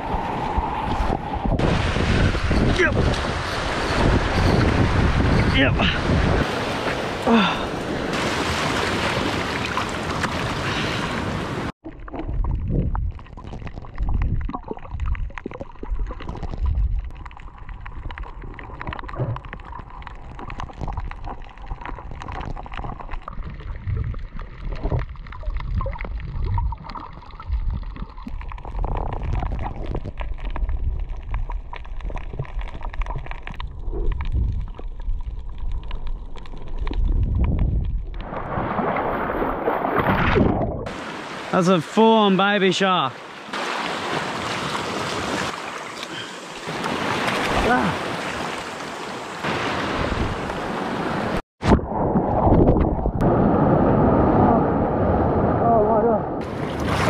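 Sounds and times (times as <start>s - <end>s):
wind on microphone: 0.0s - 6.6s, 12.2s - 15.3s, 27.4s - 38.8s
surf washing over rocks: 1.6s - 11.7s, 40.9s - 51.4s
underwater water rumble: 11.8s - 41.0s, 51.6s - 57.0s
underwater gurgling: 11.8s - 41.4s.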